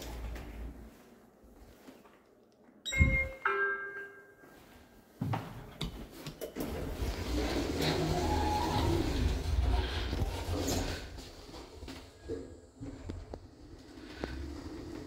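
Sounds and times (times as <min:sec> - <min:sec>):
lift two-tone chime: 0:02.9 - 0:04.5
lift mechanical noise: 0:06.6 - 0:11.0.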